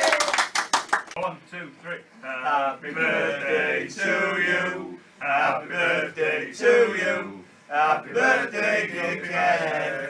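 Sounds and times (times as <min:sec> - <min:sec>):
group of people singing: 0:02.3 - 0:10.0.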